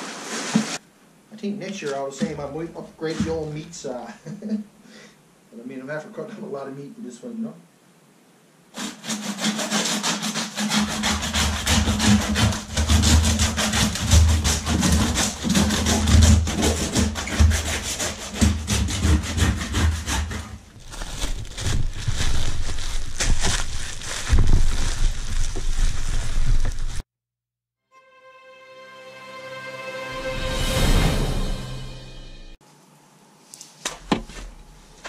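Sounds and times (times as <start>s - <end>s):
hand saw cutting bone: 8.8s - 20.6s.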